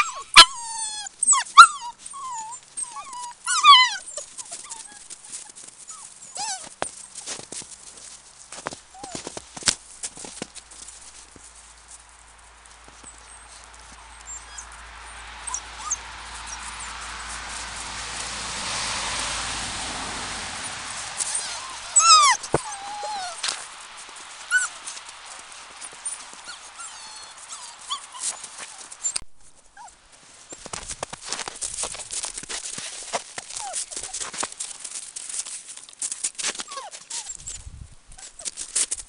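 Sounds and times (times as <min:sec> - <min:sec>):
puppies yipping and whining: 0:00.0 - 0:07.4, 0:08.9 - 0:09.4, 0:12.9 - 0:18.7, 0:20.6 - 0:29.2, 0:29.8 - 0:30.0, 0:33.4 - 0:34.4, 0:36.5 - 0:37.6
footsteps crunching in snow: 0:04.2 - 0:39.0.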